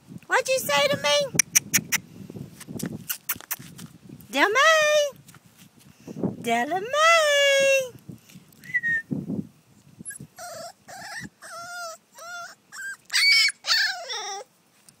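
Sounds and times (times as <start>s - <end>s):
puppy whining: 10.0s - 14.5s.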